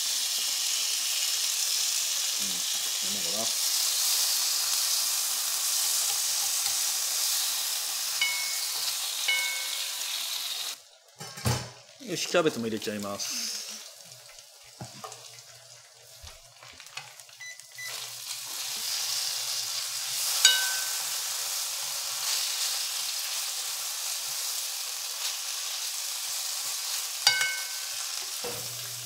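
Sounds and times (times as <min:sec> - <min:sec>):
offal and cabbage sizzling in a pan: 0:00.0 - 0:29.0
sharp ringing clinks: 0:08.2 - 0:10.1, 0:20.5 - 0:21.2, 0:27.3 - 0:28.1.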